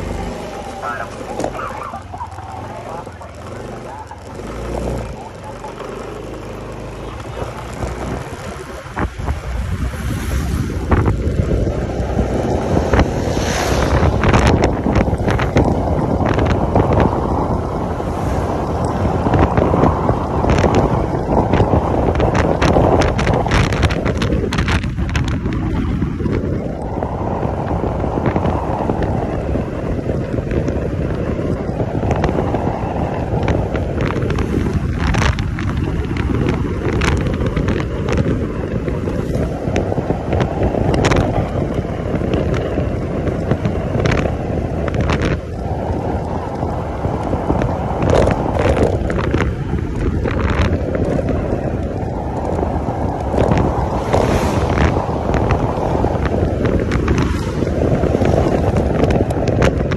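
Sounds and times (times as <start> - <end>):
scooter road noise: 0.0 - 59.9
wind buffeting microphone: 0.0 - 59.9
crackles: 0.4 - 9.1.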